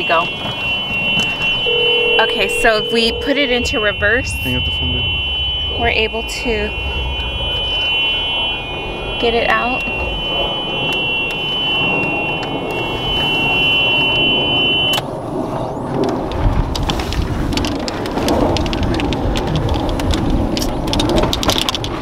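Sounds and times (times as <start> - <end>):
golf cart warning buzzer: 0.0 - 15.1
cart rumbling: 0.0 - 22.0
small clicks and rattles: 15.9 - 22.0.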